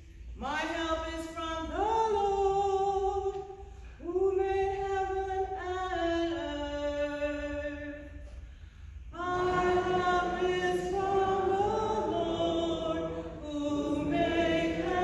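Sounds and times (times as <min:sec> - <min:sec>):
singer breath: 0:08.3 - 0:09.1
cantor singing long held notes: 0:09.1 - 0:15.0.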